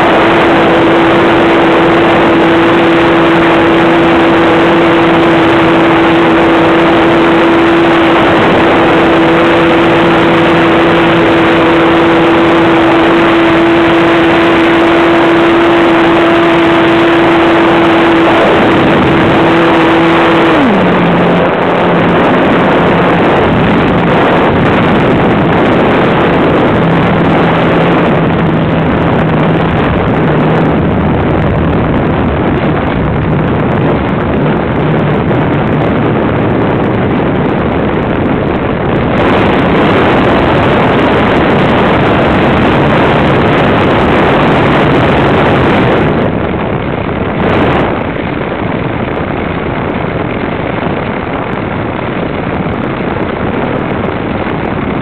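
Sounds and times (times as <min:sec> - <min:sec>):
model plane engine buzz: 0:00.0 - 0:34.0
wind rush on microphone: 0:00.0 - 0:55.0.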